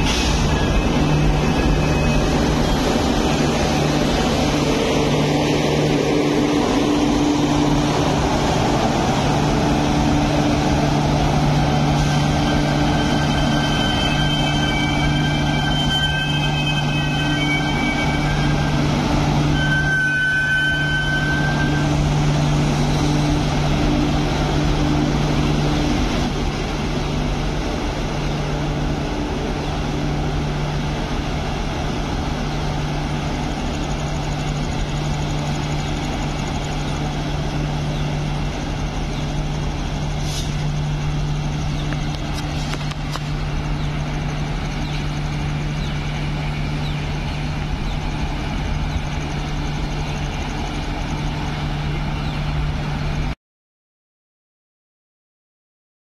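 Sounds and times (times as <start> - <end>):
diesel train engine idling: 0.0 - 15.8, 20.8 - 53.3.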